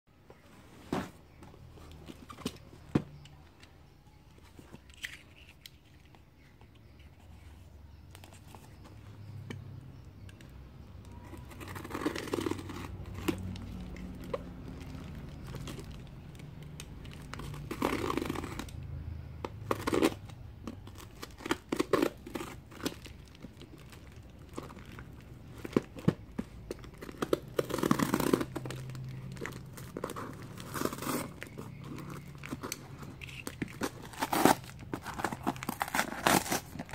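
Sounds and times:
tape and cardboard tearing: 0:17.2 - 0:18.8, 0:20.9 - 0:24.8, 0:26.8 - 0:36.9.

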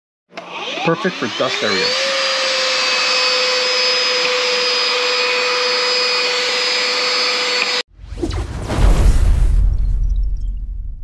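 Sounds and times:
handheld vacuum motor whine: 0:00.3 - 0:07.8.

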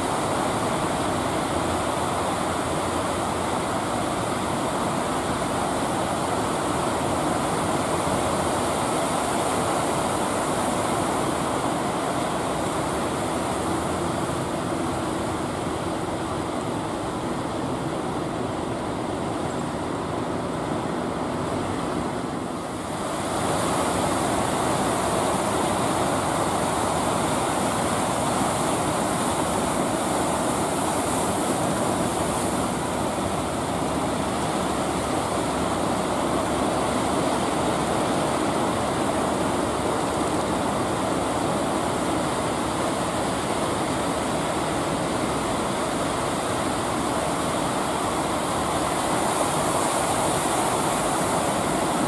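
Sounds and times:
faint boat engine hum: 0:00.0 - 0:52.0
ocean surf breaking: 0:20.0 - 0:52.0.

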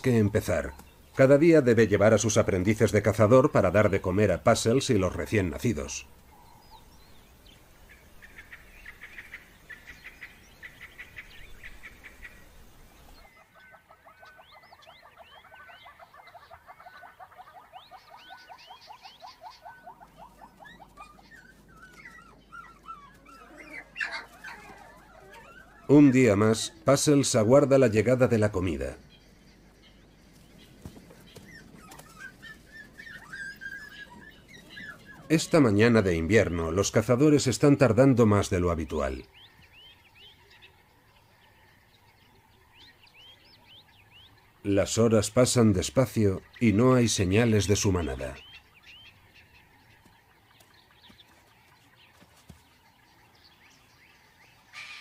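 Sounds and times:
wild dogs calling: 0:00.0 - 0:55.0
high animal chirping: 0:13.2 - 0:29.2, 0:31.2 - 0:36.6.

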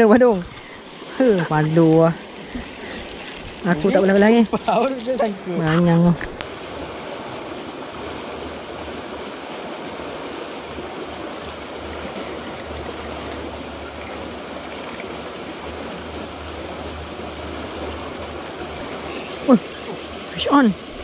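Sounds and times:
creek flowing: 0:00.0 - 0:21.0.

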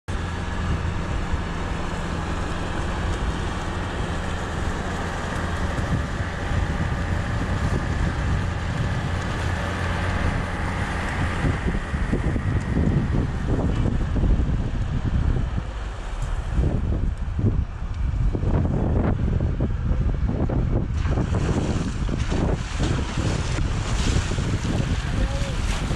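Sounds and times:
engine and tyres rumbling on gravel: 0:00.1 - 0:25.9
wind buffeting microphone: 0:00.1 - 0:25.9.

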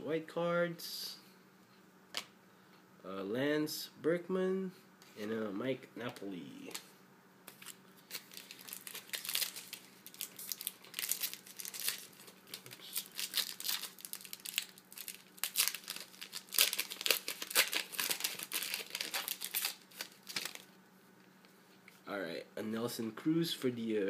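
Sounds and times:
foil wrapper tearing and crinkling: 0:07.5 - 0:20.7.

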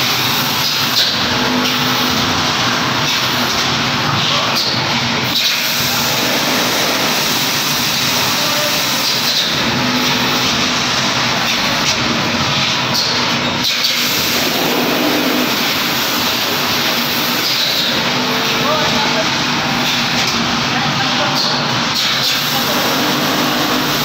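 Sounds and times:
machine rush of air: 0:10.2 - 0:20.8.

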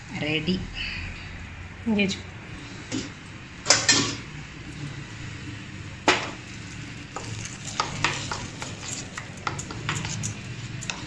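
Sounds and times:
spoon clinking and scraping steel bowl: 0:06.7 - 0:11.0.

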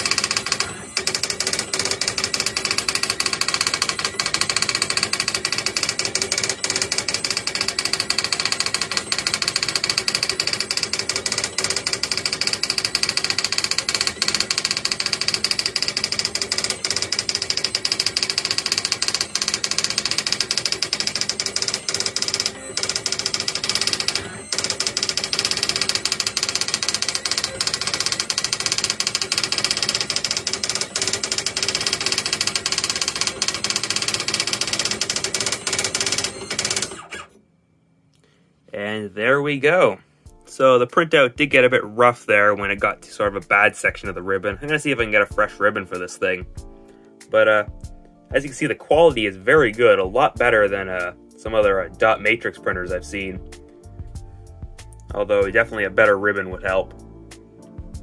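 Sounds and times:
daisy wheel printer clattering: 0:00.0 - 0:37.3.

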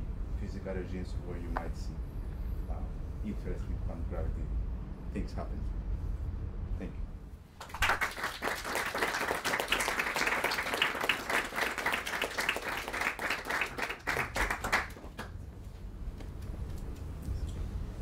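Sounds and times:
audience applauding: 0:07.6 - 0:15.4.

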